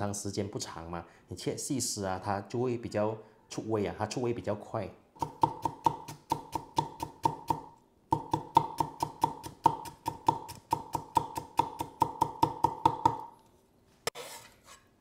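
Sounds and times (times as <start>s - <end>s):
cleaver chopping on wooden block: 5.2s - 13.3s.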